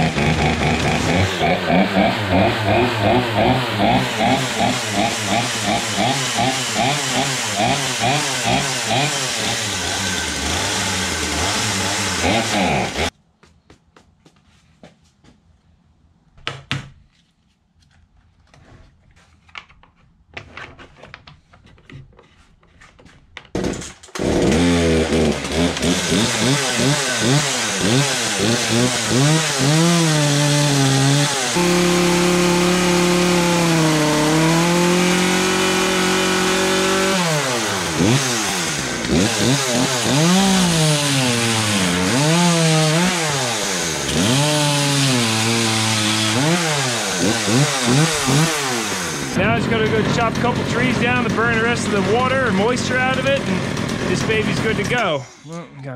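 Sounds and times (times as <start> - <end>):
chainsaw revving: 0.0 - 13.1, 23.6 - 55.4
clicks and handling noises: 17.0 - 24.1.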